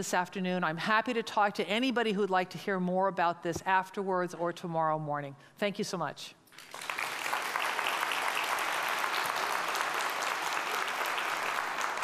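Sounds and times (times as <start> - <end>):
audience applauding: 6.5 - 12.0.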